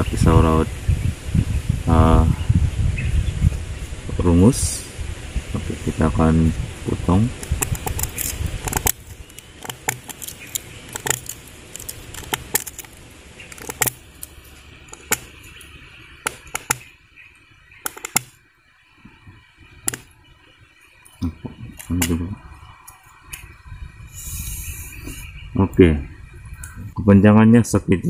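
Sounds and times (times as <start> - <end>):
knife cutting bamboo clicks: 7.4 - 15.3, 16.2 - 16.9, 17.8 - 18.4, 19.9 - 20.1.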